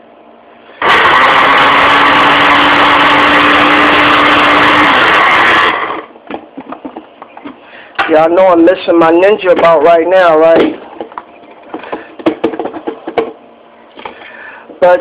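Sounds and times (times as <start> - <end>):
blender running: 0.7 - 6.2.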